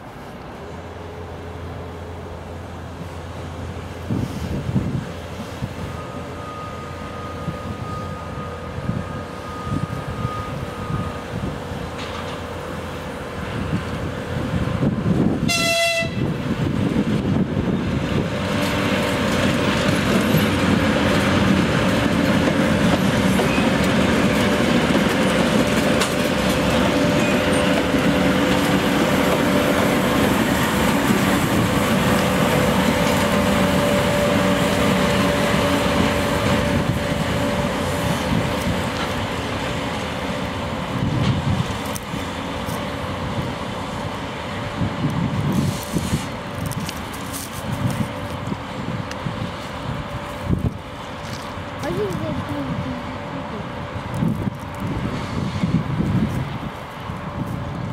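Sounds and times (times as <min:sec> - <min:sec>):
diesel engine whine and rumble: 0:00.0 - 0:57.9
locomotive horn blast: 0:15.4 - 0:16.4.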